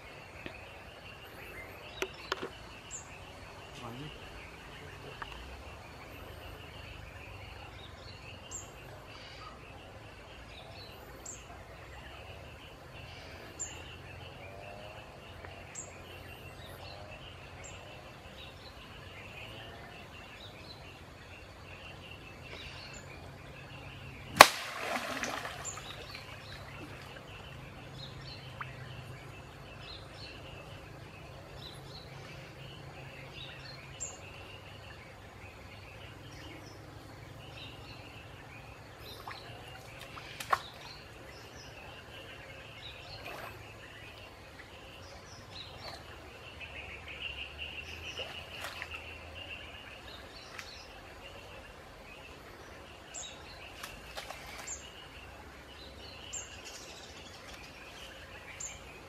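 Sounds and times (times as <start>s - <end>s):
insect drone: 0.0s - 59.0s
spear slapping water: 24.4s - 27.0s
water splashing: 24.4s - 27.6s.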